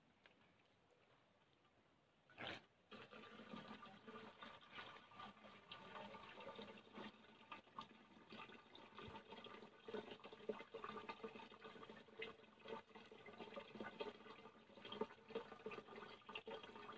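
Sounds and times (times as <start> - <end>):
water splashing and pouring: 2.9 - 16.9.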